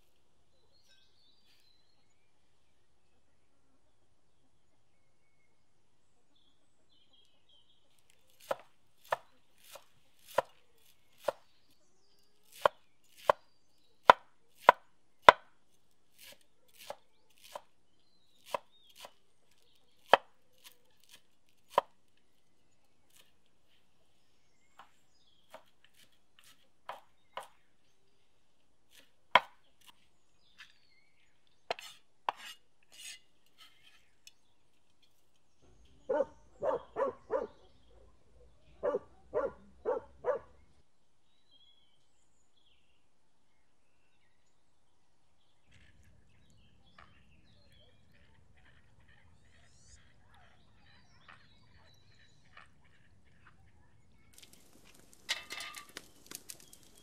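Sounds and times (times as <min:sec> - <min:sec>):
knife chopping herbs on wood: 0:08.0 - 0:22.4, 0:23.0 - 0:23.8, 0:24.8 - 0:27.7, 0:28.9 - 0:30.8, 0:31.6 - 0:35.2.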